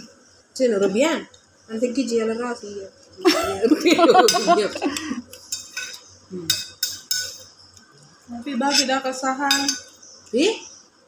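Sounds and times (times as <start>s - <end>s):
metal spoons clinking on dishes: 4.1s - 7.6s, 8.7s - 10.0s.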